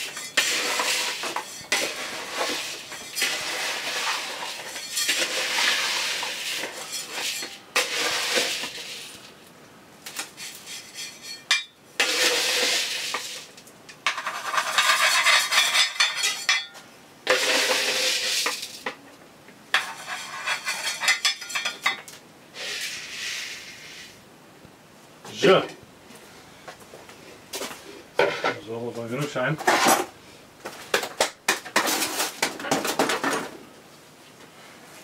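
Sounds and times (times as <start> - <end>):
metal scoop scraping gritty soil: 0.0 - 9.2, 10.3 - 13.5, 14.1 - 16.7, 17.3 - 18.8, 19.8 - 21.8, 22.6 - 24.2
soil grains pouring and rattling: 0.0 - 9.4, 12.0 - 13.5, 17.3 - 18.8.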